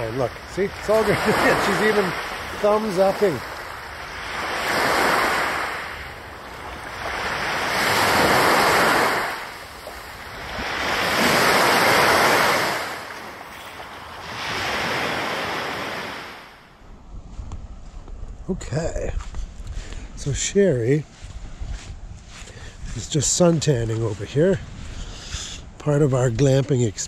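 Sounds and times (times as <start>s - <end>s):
waves washing onto beach: 0.0s - 16.7s.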